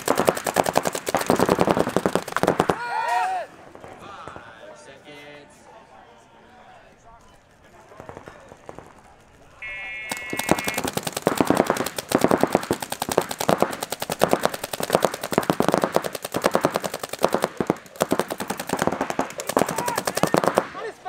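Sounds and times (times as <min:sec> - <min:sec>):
paintball markers firing: 0:00.0 - 0:02.9, 0:07.8 - 0:20.9
short electronic tone: 0:09.6 - 0:10.8.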